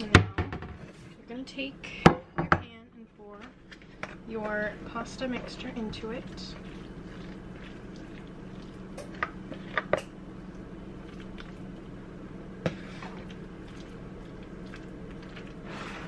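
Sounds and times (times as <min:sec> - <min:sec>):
steady low hum: 0:00.0 - 0:16.0
pasta mixture squishing: 0:03.6 - 0:16.0.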